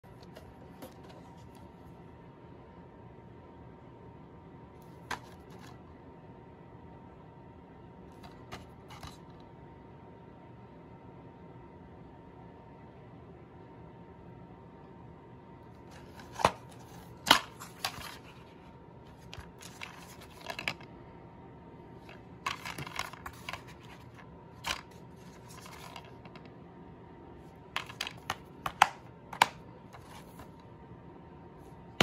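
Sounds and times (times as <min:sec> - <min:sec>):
plastic case clicks and snaps: 0:27.8 - 0:29.6.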